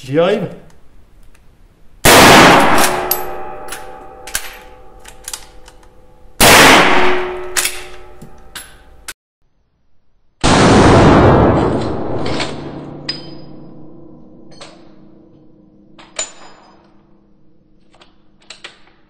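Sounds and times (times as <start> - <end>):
rifle shots with echo: 2.1 - 4.2, 6.4 - 8.1, 10.4 - 12.9
lingering metallic ring: 2.8 - 6.4, 11.9 - 17.9.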